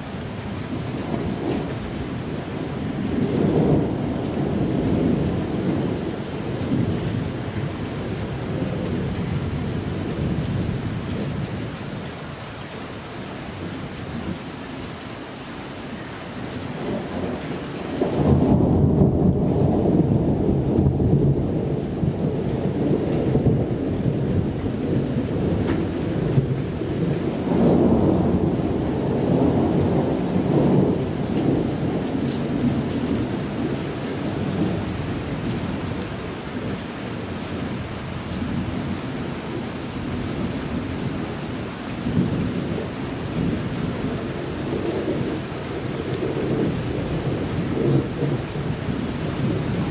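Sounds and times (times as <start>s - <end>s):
thunder rumbling: 0.0s - 11.8s, 16.7s - 49.9s
steady rain: 0.0s - 49.9s.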